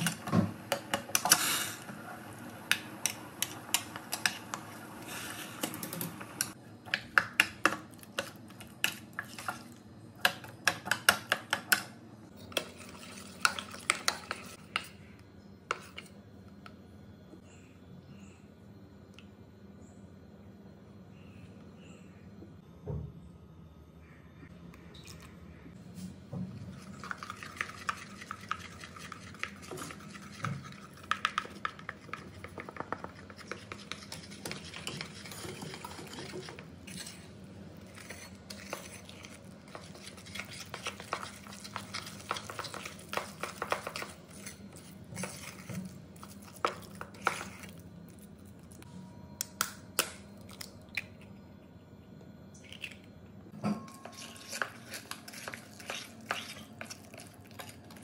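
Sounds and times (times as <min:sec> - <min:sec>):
spoon stirring batter in bowl: 0:06.5 - 0:15.0, 0:15.7 - 0:16.1, 0:26.7 - 0:47.8, 0:53.8 - 0:58.0
spoon scraping and clinking bowl: 0:27.0 - 0:37.3, 0:37.9 - 0:45.6, 0:53.7 - 0:58.0.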